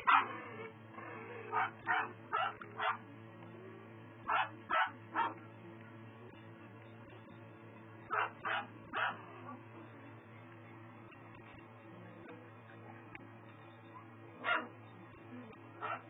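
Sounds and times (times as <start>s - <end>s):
puppies yipping: 0.0s - 3.0s, 4.3s - 5.4s, 8.1s - 9.6s, 14.0s - 14.7s.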